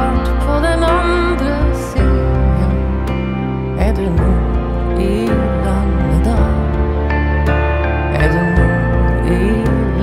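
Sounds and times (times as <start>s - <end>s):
instrumental music with bass: 0.0s - 10.0s.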